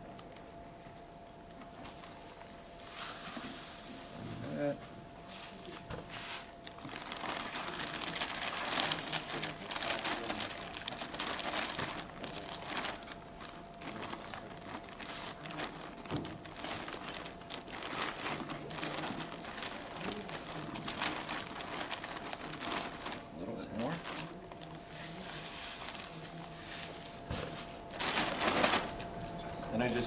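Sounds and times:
plastic bag crinkling: 5.7 - 27.2, 27.8 - 29.2.

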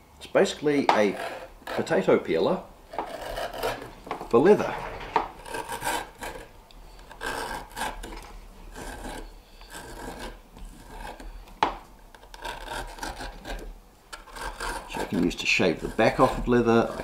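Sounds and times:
leather skiver scraping strokes: 2.9 - 11.4, 14.2 - 17.0.

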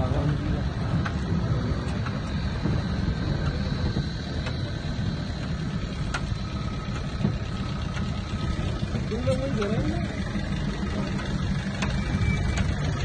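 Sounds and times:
vehicle driving on dirt track: 0.0 - 13.0.

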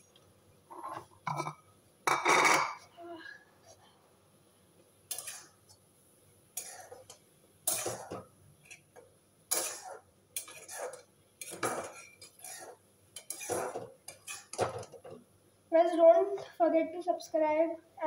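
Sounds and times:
spatula scraping metal wok: 9.5 - 14.6.

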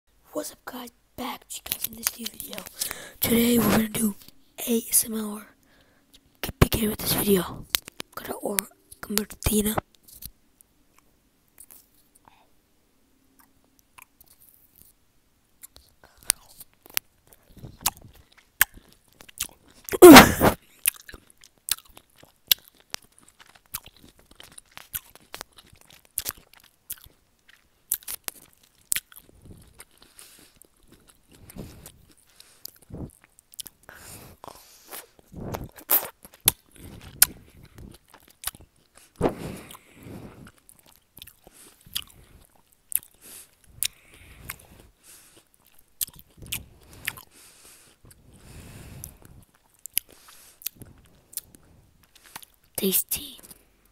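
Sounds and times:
mouth noises: 1.2 - 4.3, 19.9 - 20.6, 52.8 - 53.5
chewing crunchy snack: 5.6 - 12.4, 13.3 - 15.0, 15.6 - 52.8.

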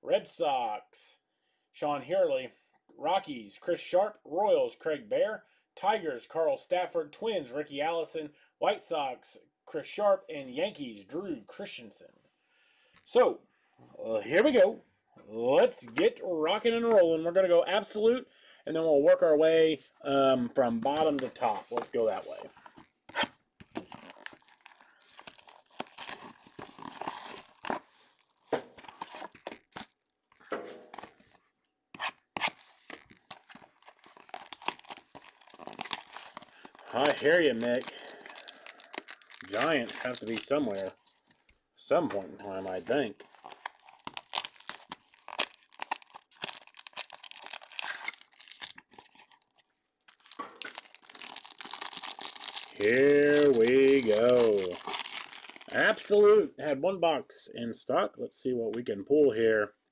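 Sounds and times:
foil packs tearing and crinkling: 23.6 - 30.0, 32.0 - 41.4, 43.2 - 56.1.

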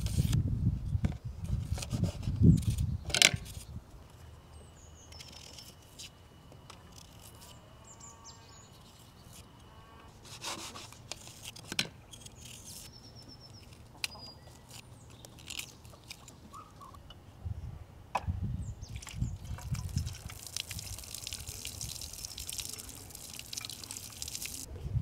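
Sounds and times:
birds chirping faintly: 12.1 - 17.0.

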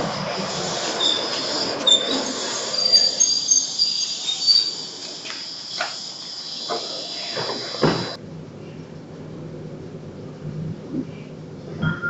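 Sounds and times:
electric train squealing: 0.0 - 8.2.

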